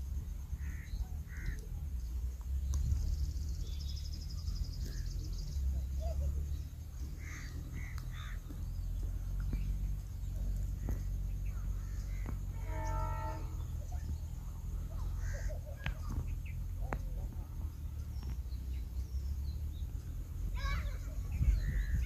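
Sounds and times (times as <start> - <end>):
steady low rumble: 0.0 - 22.0
short bird calls: 0.6 - 1.8, 3.7 - 17.1.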